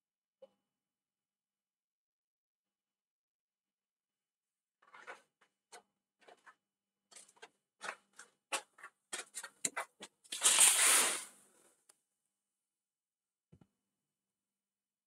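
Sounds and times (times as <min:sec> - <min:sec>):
rushing scrape-like noise: 0:10.4 - 0:11.4.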